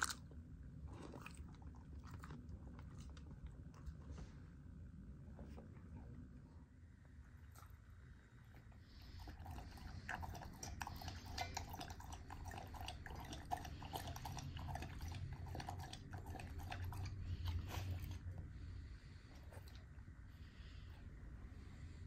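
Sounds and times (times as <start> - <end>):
dog lapping water: 9.0 - 18.2.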